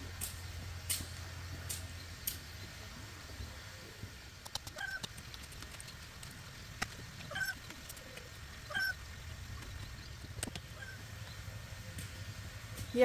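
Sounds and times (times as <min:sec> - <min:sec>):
animal calling: 0:04.6 - 0:06.1, 0:07.1 - 0:10.0, 0:10.6 - 0:11.1.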